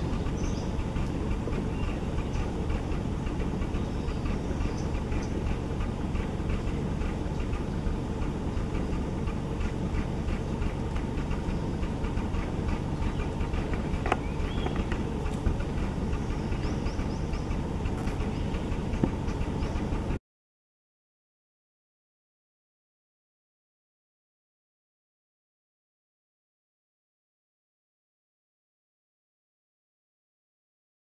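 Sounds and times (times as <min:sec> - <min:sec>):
faint rapid ticking: 0:00.0 - 0:20.2
jeep engine idling: 0:00.0 - 0:20.2.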